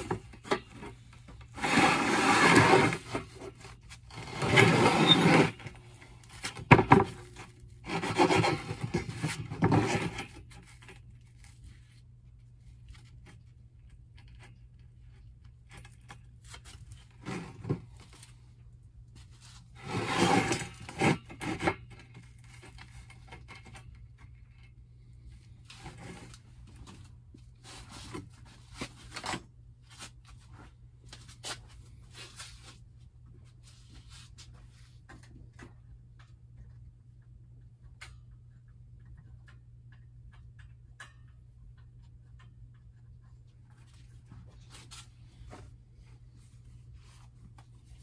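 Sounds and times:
steel band scraping on wood: 0:00.0 - 0:05.9, 0:07.8 - 0:10.5, 0:19.8 - 0:22.0.

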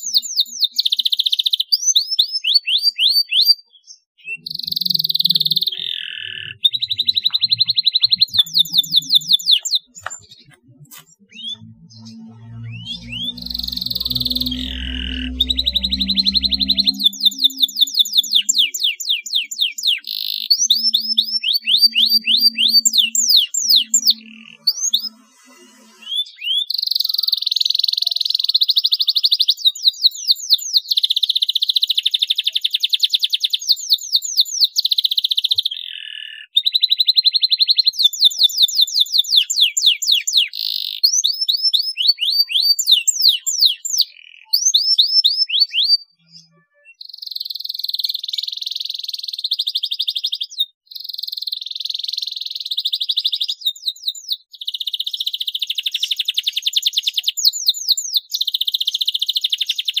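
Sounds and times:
canary singing: 0:00.0 - 0:31.4, 0:33.4 - 0:48.4.

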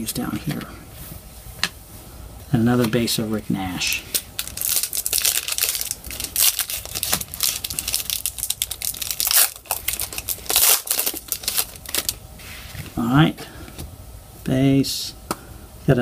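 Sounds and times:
foil wrapper crinkling: 0:03.9 - 0:12.2.

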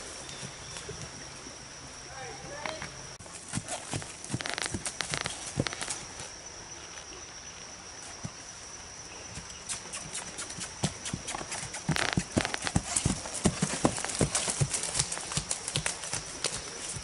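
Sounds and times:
horse hooves on dirt: 0:03.2 - 0:07.1, 0:08.0 - 0:08.6, 0:09.2 - 0:17.0.

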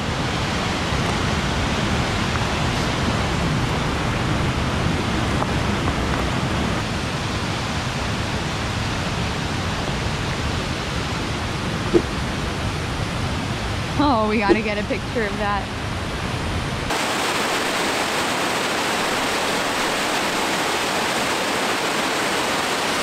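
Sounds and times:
waterfall rushing: 0:16.9 - 0:23.0.

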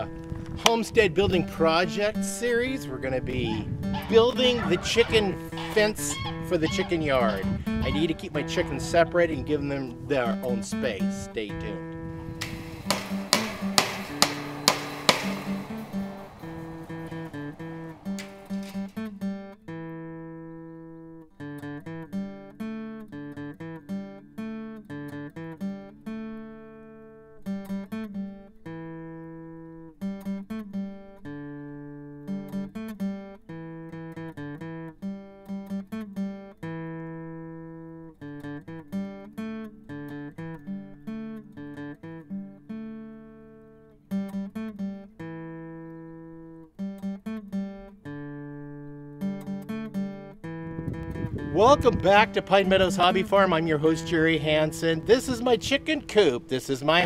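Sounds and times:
acoustic guitar picking: 0:00.0 - 0:57.0.

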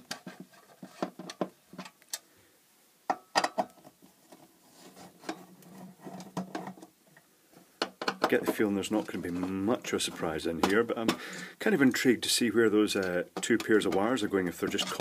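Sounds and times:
clicks and knocks of metal case: 0:03.1 - 0:03.9, 0:07.8 - 0:08.6.

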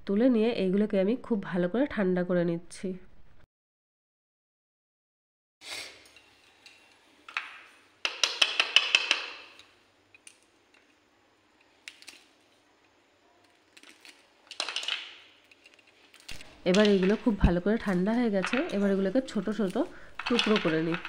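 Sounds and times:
fried dough crackling as it breaks: 0:11.6 - 0:12.4, 0:13.4 - 0:16.5.

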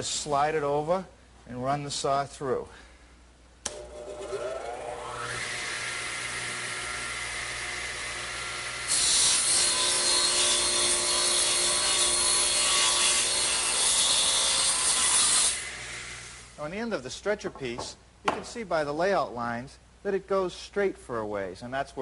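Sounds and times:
saw cutting wood: 0:03.7 - 0:16.6.

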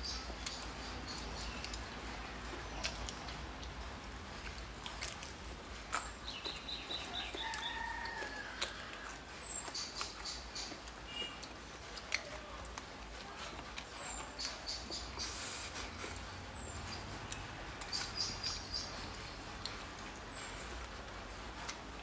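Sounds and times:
birds chirping: 0:00.0 - 0:03.4, 0:05.8 - 0:08.5, 0:13.8 - 0:20.8
chewing and lip smacks: 0:00.3 - 0:21.0.

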